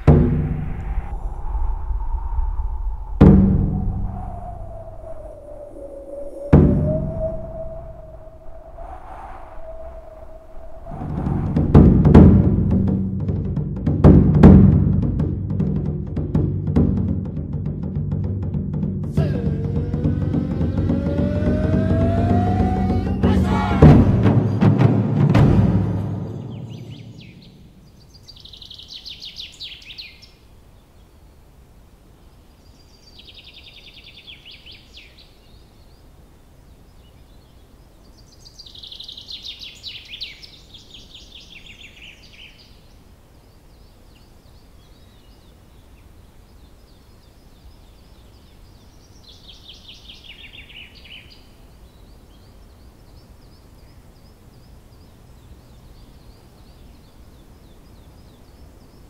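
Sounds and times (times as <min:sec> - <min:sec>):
faint birdsong: 0:00.0 - 0:13.4, 0:26.0 - 0:59.0
songbird singing trilled phrases: 0:26.3 - 0:30.4, 0:32.7 - 0:36.1, 0:36.9 - 0:59.0
low background noise: 0:26.3 - 0:59.0.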